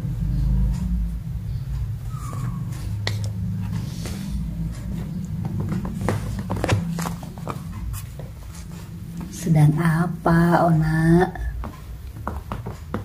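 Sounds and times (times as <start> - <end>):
steady low hum: 0.0 - 13.0
kitten paws on tiled floor: 2.1 - 9.5, 11.5 - 13.0.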